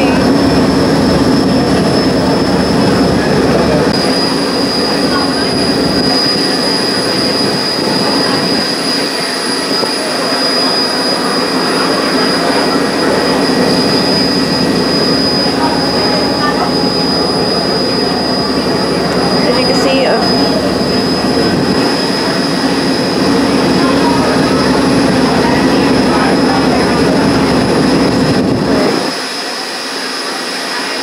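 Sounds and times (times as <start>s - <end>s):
boat engine drone: 0.0s - 31.0s
high constant whine: 0.0s - 31.0s
water rushing along hull: 0.0s - 31.0s.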